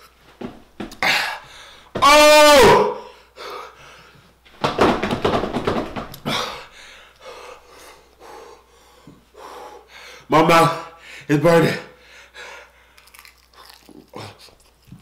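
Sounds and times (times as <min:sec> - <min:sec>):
man breathing hard: 0:01.0 - 0:02.0, 0:03.0 - 0:04.4, 0:06.2 - 0:11.3, 0:11.9 - 0:13.1.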